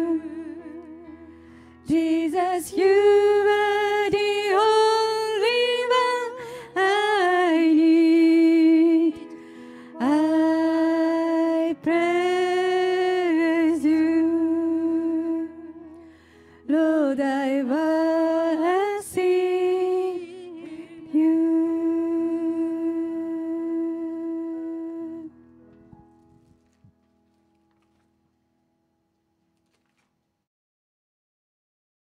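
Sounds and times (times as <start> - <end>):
women singing worship song: 1.8 - 9.3, 10.0 - 15.8, 16.7 - 25.3.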